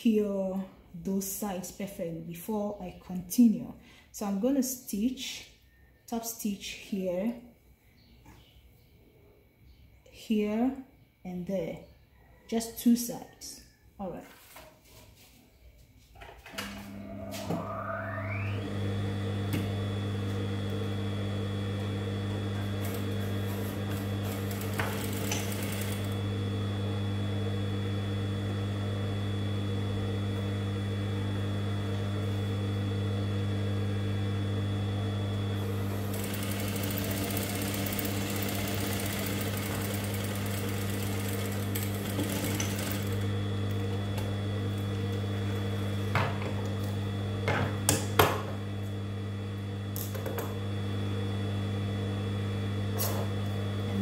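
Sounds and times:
sewing machine motor whine: 16.5s - 54.0s
sewing machine stitching clatter: 22.6s - 26.2s, 35.9s - 44.3s.

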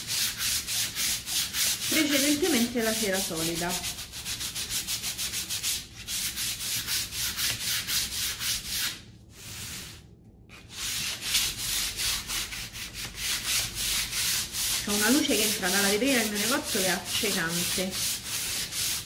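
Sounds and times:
sandpaper rubbing back and forth: 0.0s - 10.0s, 10.7s - 19.0s.

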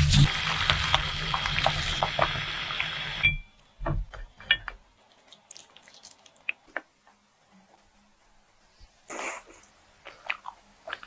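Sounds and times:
boiling water bubbling: 0.0s - 3.3s.

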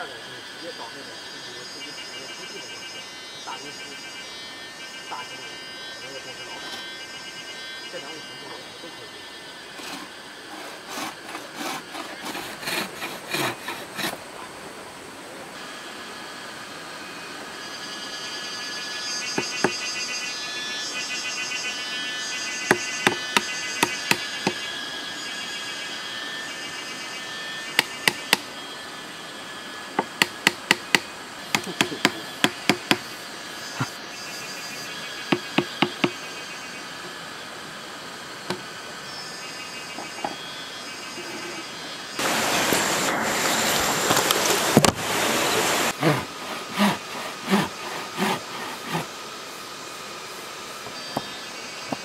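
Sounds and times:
insects chirping: 0.0s - 52.0s
saw cutting bamboo: 0.2s - 14.6s, 18.6s - 20.9s, 21.7s - 37.2s, 41.1s - 49.2s
small hammer tapping bamboo: 30.0s - 33.0s.

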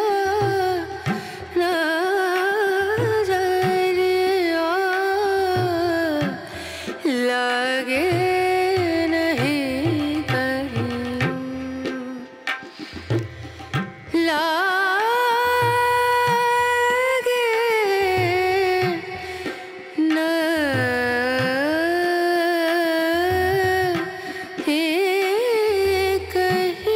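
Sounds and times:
hand drum rhythm: 2.3s - 7.1s, 7.9s - 14.3s, 18.0s - 21.9s, 22.7s - 26.9s.

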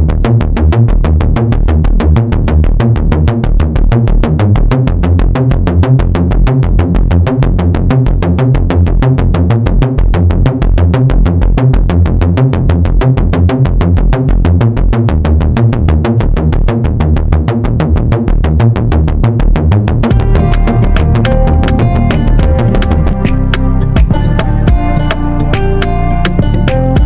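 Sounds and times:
electronic music with drum-machine beat: 19.2s - 27.0s.

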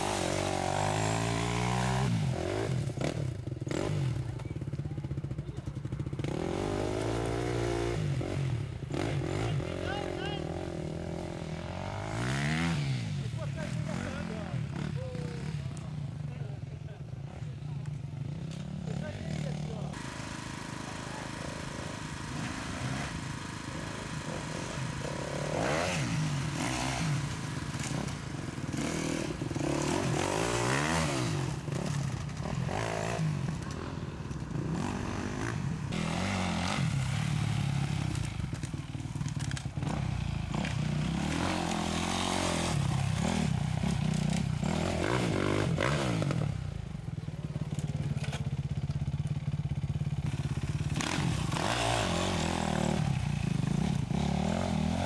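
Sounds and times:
dirt bike engines revving: 0.0s - 55.0s.

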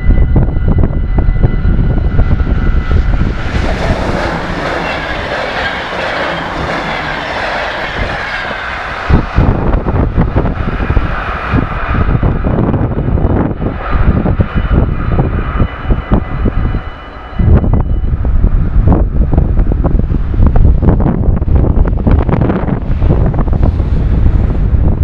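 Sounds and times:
train passing at speed: 0.0s - 25.0s
wind rumble on microphone: 0.0s - 25.0s
level-crossing bell ringing: 14.2s - 18.2s.

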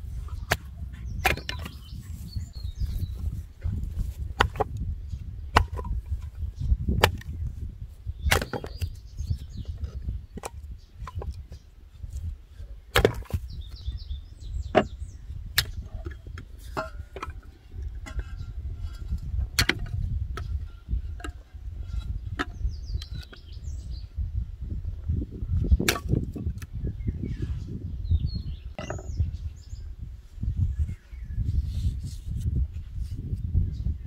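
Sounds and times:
bird chirps: 0.3s - 3.4s, 13.3s - 16.4s, 26.8s - 29.9s
hatchet splitting wood: 0.5s - 1.9s, 4.2s - 4.8s, 5.5s - 6.2s, 6.8s - 7.4s, 8.2s - 9.0s, 12.9s - 13.6s, 19.5s - 20.0s, 25.8s - 26.6s.

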